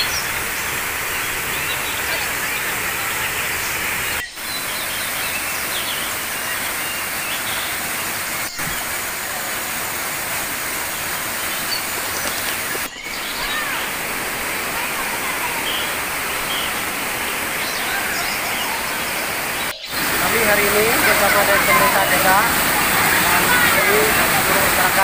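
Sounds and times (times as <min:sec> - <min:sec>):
waterfall rushing over rocks: 0:00.0 - 0:25.0.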